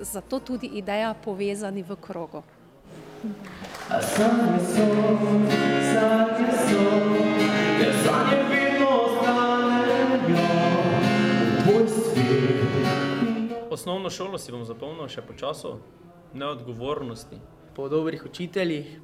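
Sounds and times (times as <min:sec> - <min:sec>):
acoustic guitar: 0:02.9 - 0:15.6
man singing: 0:03.9 - 0:13.8.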